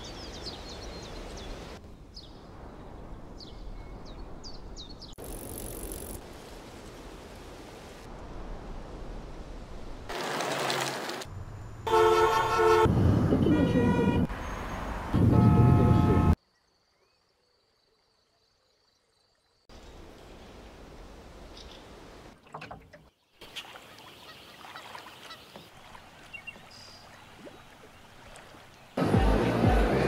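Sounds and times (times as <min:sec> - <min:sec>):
car horn blare: 0:11.8 - 0:14.3, 0:15.2 - 0:16.4.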